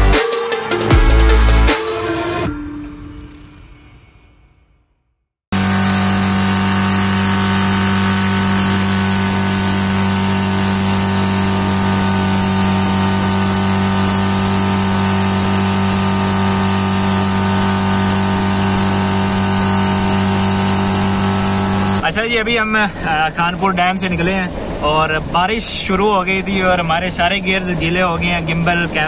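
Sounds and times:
motorboat engine running: 5.5s - 22.2s.

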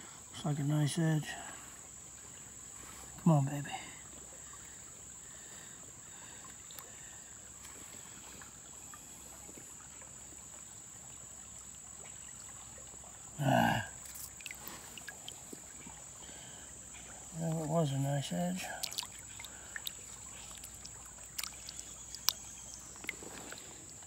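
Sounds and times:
faint water movement: 0.1s - 24.0s
hand digging in creek bed: 14.0s - 15.7s, 17.4s - 23.9s
stones clicking: 18.8s - 19.1s.

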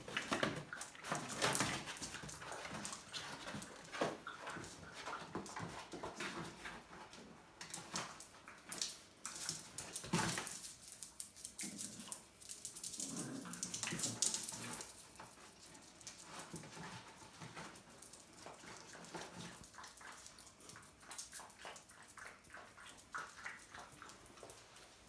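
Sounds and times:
puppy vocal sounds: 11.6s - 14.9s.

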